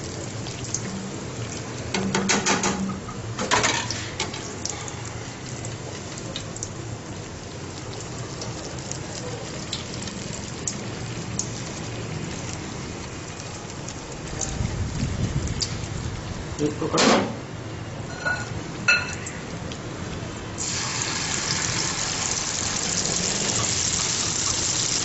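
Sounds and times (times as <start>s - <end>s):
pops and crackles of frying: 0.0s - 16.0s
batter deep-frying in oil: 0.0s - 25.0s.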